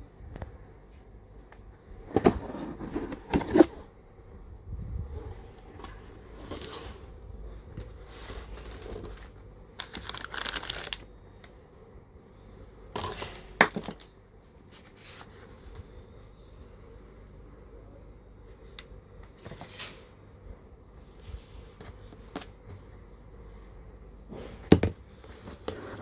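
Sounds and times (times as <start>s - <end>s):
plastic and paper packaging crinkling: 7.8s - 11.5s.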